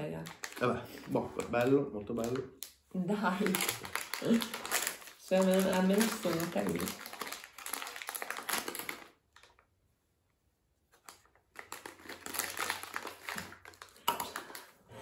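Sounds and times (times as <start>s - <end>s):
foil wrapper crinkling and tearing: 0.1s - 2.4s, 3.2s - 9.7s, 11.0s - 14.7s.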